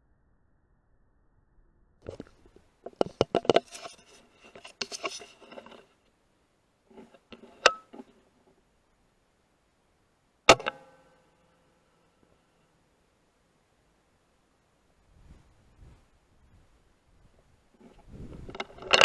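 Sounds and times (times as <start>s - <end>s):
handling clicks and clatter: 2.0s - 5.9s, 17.8s - 19.0s.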